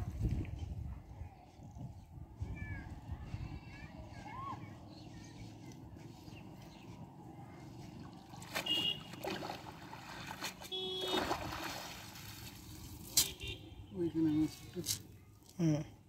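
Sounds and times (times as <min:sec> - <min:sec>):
water splashing and dripping: 0:08.0 - 0:13.3.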